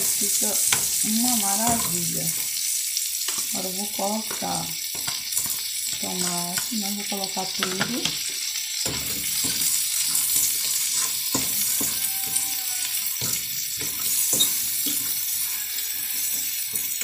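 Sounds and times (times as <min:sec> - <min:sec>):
sausage sizzling in a frying pan: 0:00.0 - 0:17.0
fork scraping and tapping pan: 0:04.3 - 0:05.7, 0:08.8 - 0:17.0.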